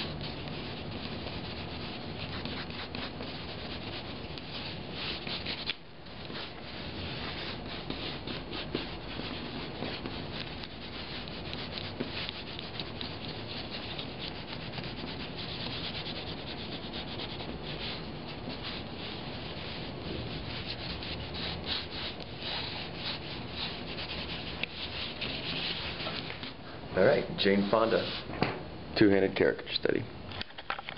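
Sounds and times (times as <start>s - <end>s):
pens scratching on paper: 0.0s - 26.6s.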